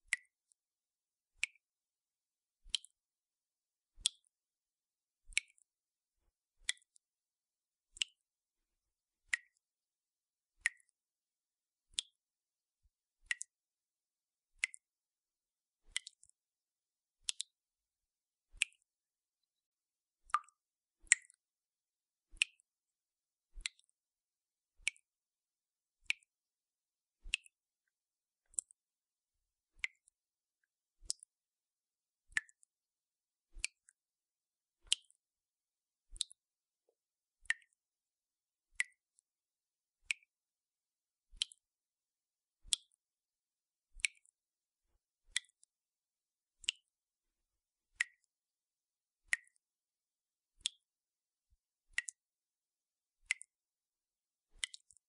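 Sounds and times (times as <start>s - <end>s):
water dripping from tap: 9.3s - 9.6s, 10.6s - 11.0s, 13.3s - 13.6s, 15.9s - 16.4s, 20.3s - 21.4s, 23.6s - 23.9s, 32.3s - 32.7s, 37.4s - 37.8s, 41.4s - 41.6s, 46.6s - 46.9s, 48.0s - 48.3s, 49.3s - 49.6s, 51.9s - 52.2s, 54.6s - 55.0s.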